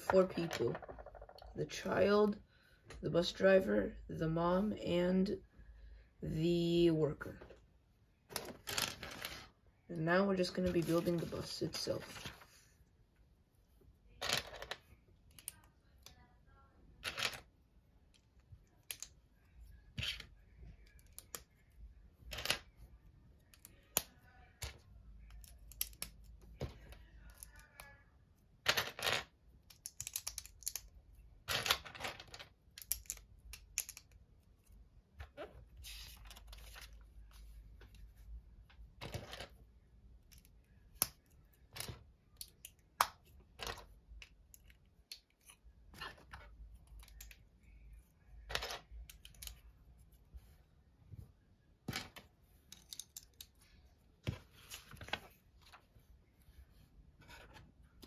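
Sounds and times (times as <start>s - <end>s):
plastic pieces clicking and rattling: 28.6s - 30.9s, 31.5s - 34.2s, 52.0s - 53.6s.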